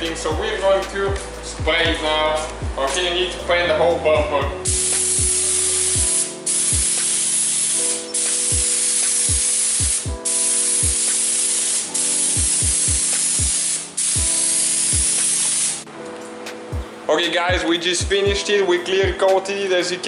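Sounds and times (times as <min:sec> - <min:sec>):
spray gun hissing: 0:04.6 - 0:15.9.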